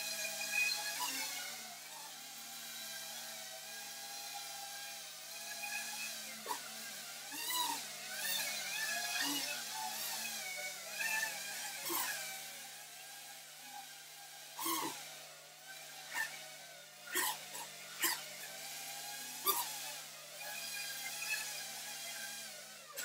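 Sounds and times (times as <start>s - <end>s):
quadcopter motors whining: 0.0s - 23.0s.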